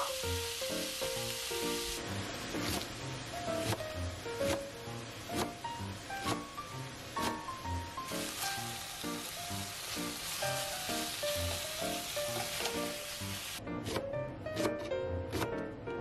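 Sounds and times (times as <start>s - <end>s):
meat sizzling in a frying pan: 0.0s - 3.3s, 6.7s - 13.6s.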